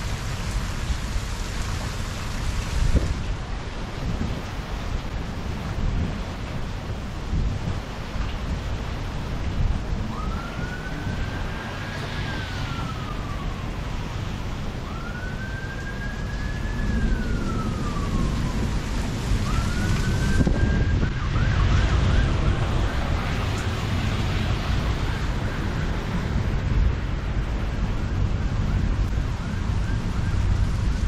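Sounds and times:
heavy rain: 0.0 - 31.0
low rumble of thunder: 0.0 - 31.0
emergency vehicle siren: 9.1 - 31.0.

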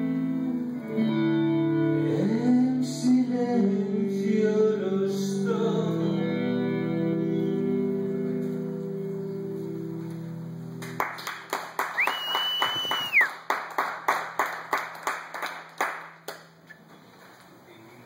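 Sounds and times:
guitar chord ringing: 0.0 - 3.4, 5.5 - 10.9
small group clapping: 10.8 - 16.6
short whistle: 12.0 - 13.4.

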